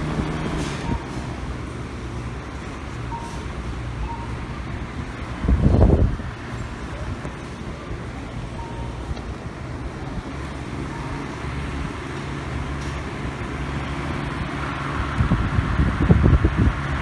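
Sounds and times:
wind buffeting microphone: 4.6 - 8.1, 14.3 - 17.0
fan blowing air: 5.1 - 6.4, 14.3 - 17.0.

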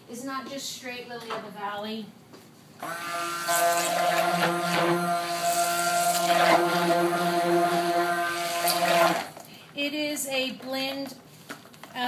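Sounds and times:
stick blender motor buzzing: 2.8 - 9.4.

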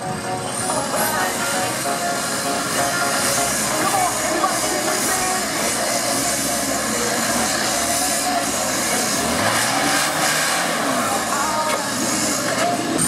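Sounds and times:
buggy engine working hard: 0.0 - 13.0.

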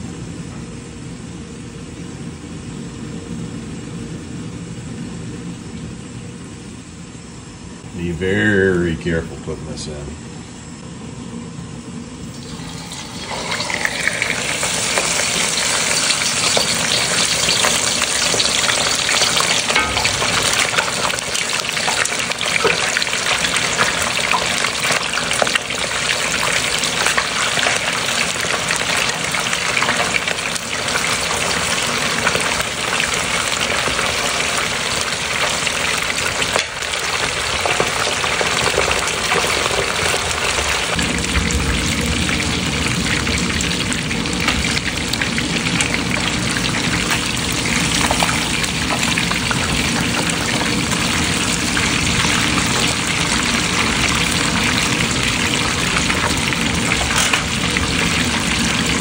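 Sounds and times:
fish sizzling in hot oil: 12.3 - 59.0.

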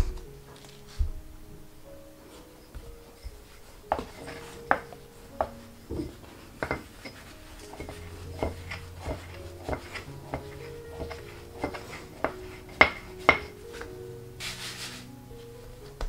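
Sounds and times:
rolling pin clacking on board: 3.9 - 13.6.

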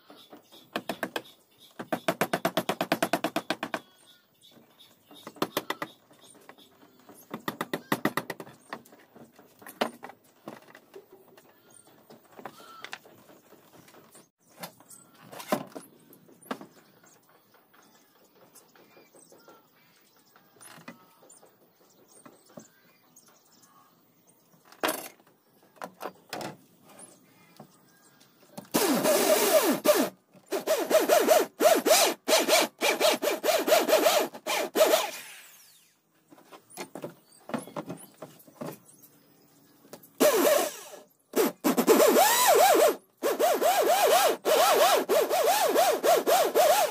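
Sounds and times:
electric drill boring into plywood: 28.8 - 35.9, 40.2 - 41.0.

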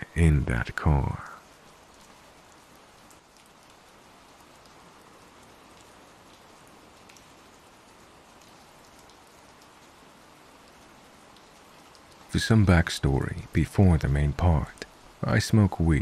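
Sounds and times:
rain hissing: 0.0 - 16.0
raindrop ticks: 0.0 - 16.0.

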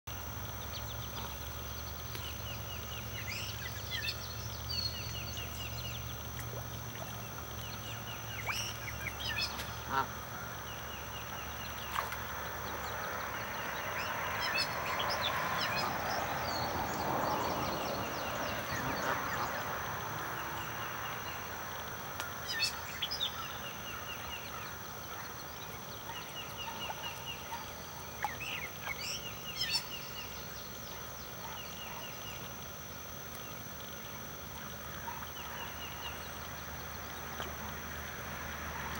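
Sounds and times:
small birds chirping: 0.6 - 10.1, 22.2 - 32.6.

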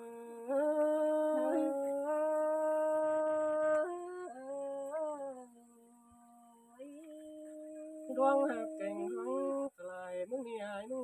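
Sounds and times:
person singing unaccompanied: 0.0 - 11.0.

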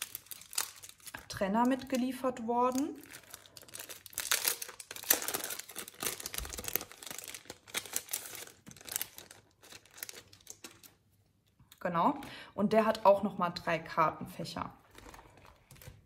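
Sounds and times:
plastic wrapping crinkling: 0.0 - 11.0, 14.8 - 16.0.

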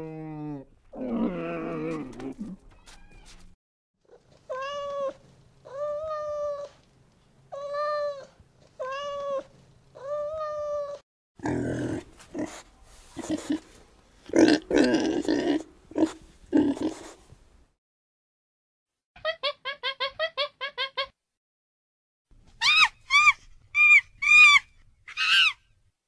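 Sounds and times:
pigs grunting: 11.4 - 12.6, 13.2 - 13.7, 14.3 - 17.2.

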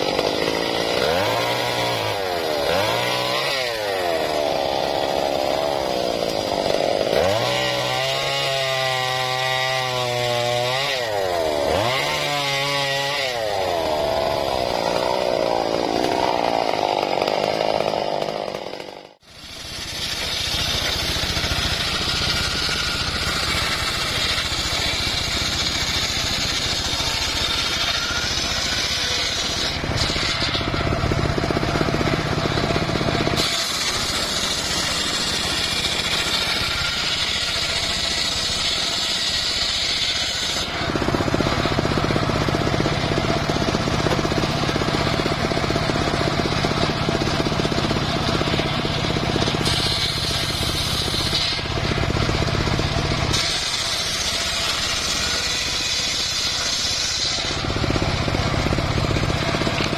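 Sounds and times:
sawmill blade ripping log: 0.0 - 59.9.

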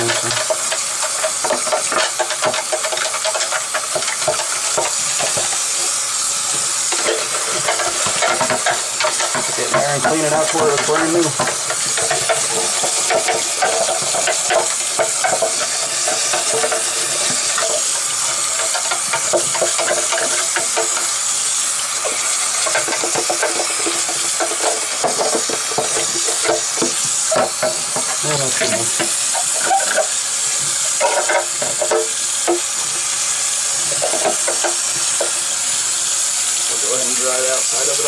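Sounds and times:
brush scrubbing plastic: 0.0 - 38.0
tap water running into sink: 0.0 - 38.0.

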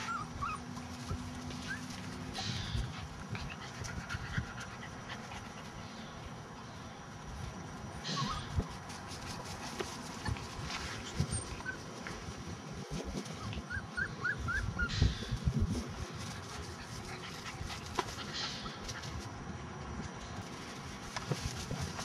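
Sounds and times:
puppies whimpering: 0.0 - 5.8, 8.0 - 8.7, 13.2 - 15.4
rustling and soft bumps: 15.3 - 22.0.

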